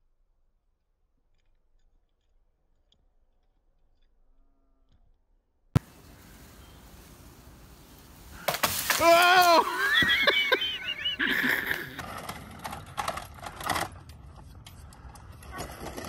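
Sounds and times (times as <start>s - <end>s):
twigs crackling: 5.8s - 11.7s
crash into leafy bushes: 8.3s - 10.2s
sudden crack: 8.4s - 9.8s
person's high-pitched cry: 9.0s - 10.6s.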